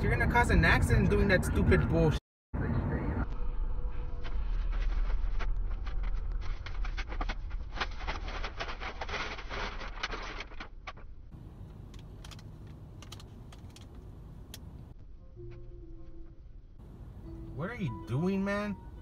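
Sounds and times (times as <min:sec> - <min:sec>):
car road rumble: 0:00.0 - 0:19.0
rapid clicking or rattling: 0:11.7 - 0:14.0.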